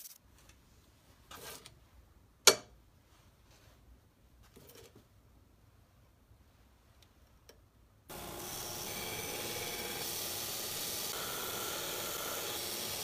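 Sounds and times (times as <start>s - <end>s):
belt sander grinding steel: 8.1s - 13.0s.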